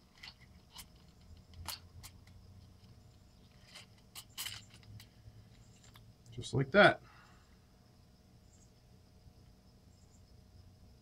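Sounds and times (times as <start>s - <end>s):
faint plastic clicks and scrapes: 0.0s - 6.1s.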